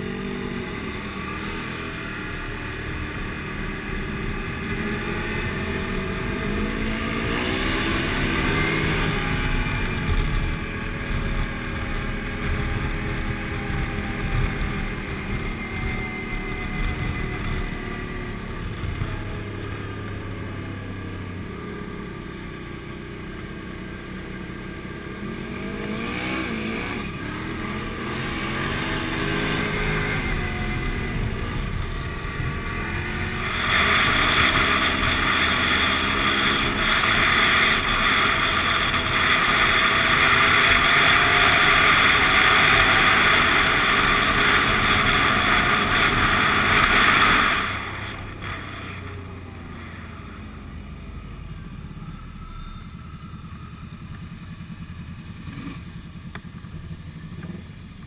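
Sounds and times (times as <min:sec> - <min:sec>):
motorcycle engine revving: 0:00.0 - 0:58.0
wind rush on microphone: 0:06.9 - 0:19.4.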